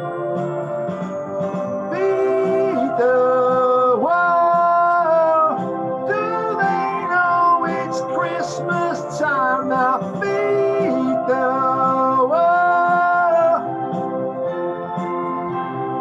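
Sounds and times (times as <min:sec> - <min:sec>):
backing track: 0:00.0 - 0:16.0
man singing: 0:01.9 - 0:13.7.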